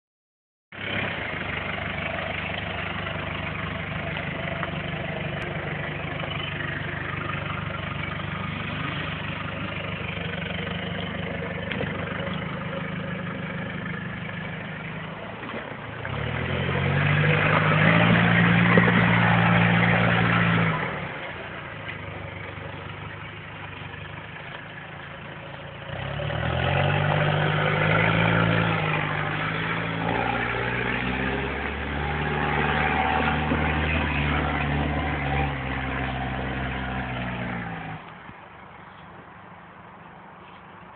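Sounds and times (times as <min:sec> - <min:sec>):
car engine revving: 0:00.8 - 0:38.1.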